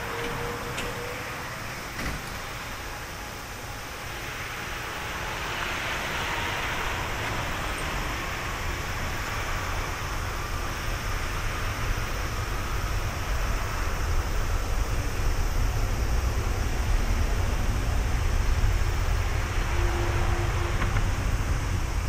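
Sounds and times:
jet engines at takeoff: 0.0s - 22.0s.

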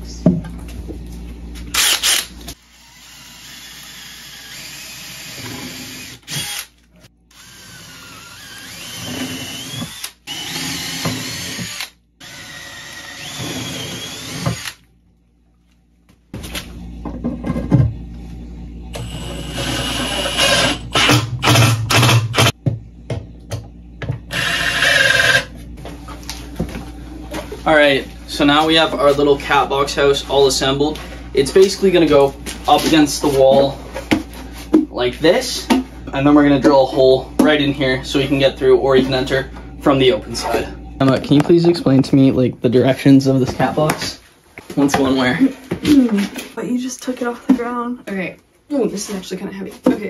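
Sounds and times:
power drill whining: 1.7s - 14.8s, 18.9s - 22.5s, 24.3s - 25.5s.

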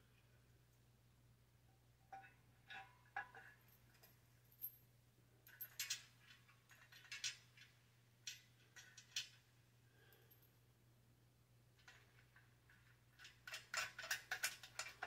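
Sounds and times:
metallic clicks and clinks: 5.4s - 9.5s, 11.8s - 15.0s.

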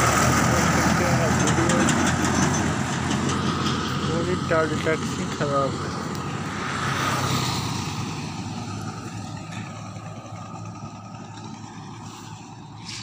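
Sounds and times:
vehicle passing on road: 0.0s - 13.0s.

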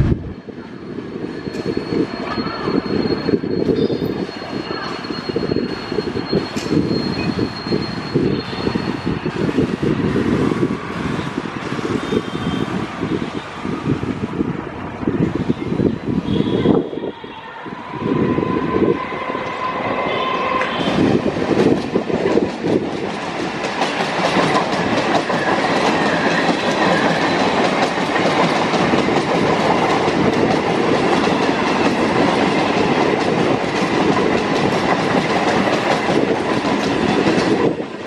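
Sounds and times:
steady high tone: 16.5s - 21.5s
train wheels over rail joints: 17.9s - 38.0s.

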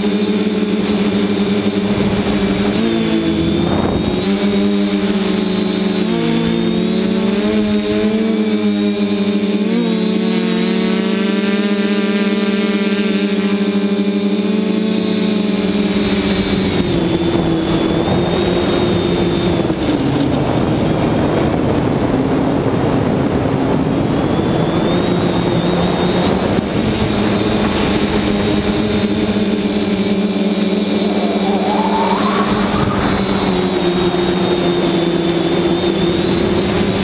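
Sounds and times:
drone propellers whining: 28.7s - 37.0s
dense rushing noise: 30.3s - 35.4s.

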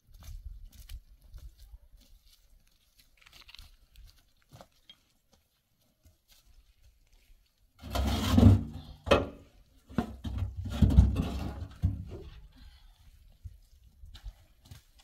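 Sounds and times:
rough scraping and rubbing: 7.8s - 9.0s.

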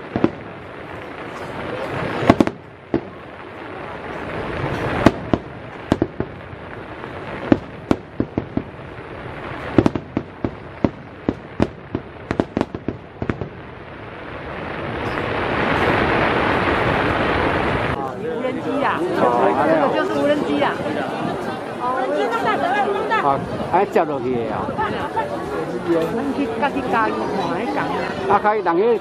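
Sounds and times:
firework shells bursting: 0.0s - 3.2s, 4.6s - 6.6s, 7.2s - 13.6s
wash of noise: 13.6s - 21.8s.

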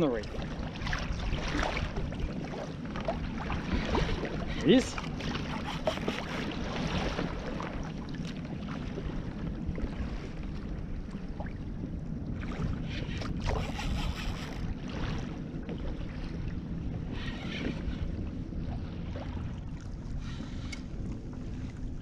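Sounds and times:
water slapping kayak hull: 0.0s - 22.0s
wind buffeting microphone: 0.0s - 22.0s.

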